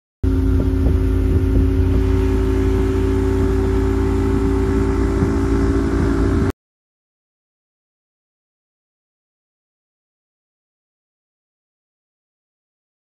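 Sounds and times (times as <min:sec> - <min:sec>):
motorboat engine running: 0:00.2 - 0:06.6.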